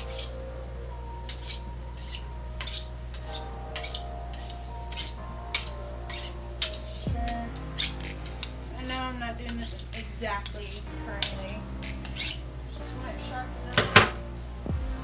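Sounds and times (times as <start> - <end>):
knife scraping on sharpening steel: 0.0 - 0.4, 1.3 - 12.5.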